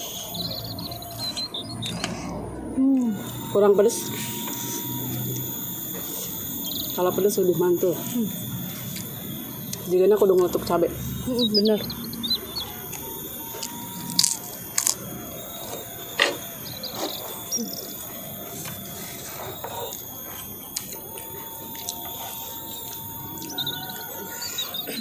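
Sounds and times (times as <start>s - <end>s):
birds chirping: 0.0s - 25.0s
crackers crunching: 12.8s - 17.6s, 18.5s - 25.0s.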